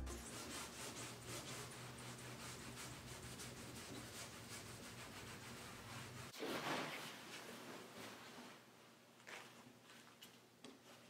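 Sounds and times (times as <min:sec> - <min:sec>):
low steady hum: 0:00.0 - 0:01.2
cloth rag rubbing: 0:00.0 - 0:08.7.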